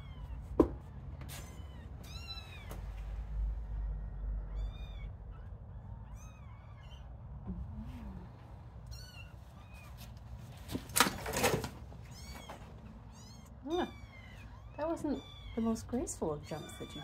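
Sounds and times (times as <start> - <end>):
kittens mewing: 4.4 - 10.1, 12.0 - 17.0.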